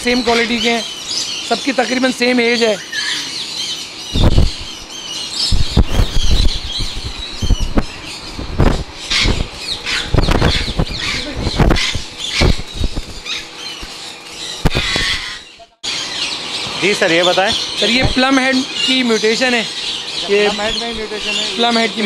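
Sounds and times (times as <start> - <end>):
parrots squawking: 0.0 - 8.3, 9.0 - 22.0
wings flapping: 4.1 - 4.9, 5.5 - 15.5.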